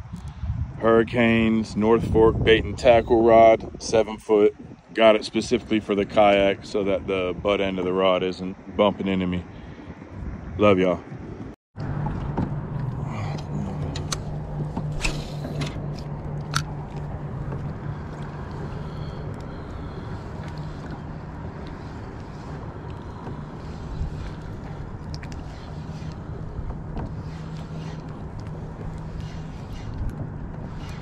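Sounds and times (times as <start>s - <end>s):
wind: 0.0s - 31.0s
steady low hum: 11.8s - 31.0s
water washing: 14.4s - 31.0s.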